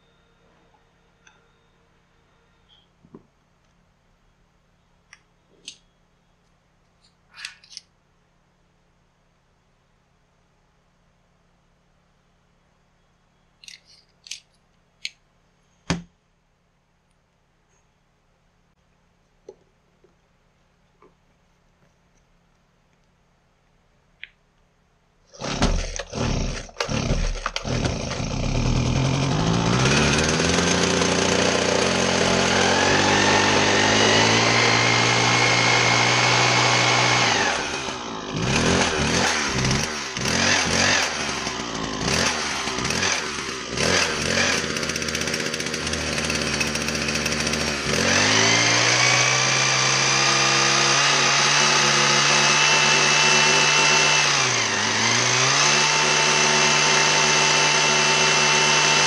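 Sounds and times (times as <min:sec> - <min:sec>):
hedge trimmer engine revving: 0:25.3 - 0:59.0.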